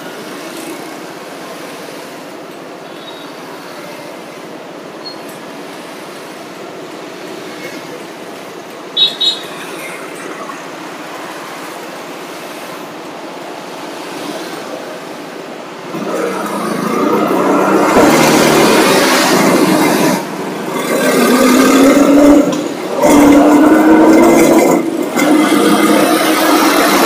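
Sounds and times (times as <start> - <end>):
road noise hum: 0.0 - 27.0
engine revving: 15.8 - 27.0.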